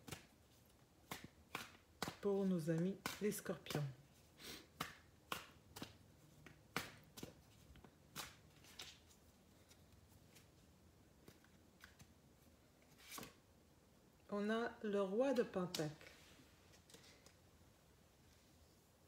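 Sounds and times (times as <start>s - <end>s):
cards being shuffled: 0.0s - 13.4s.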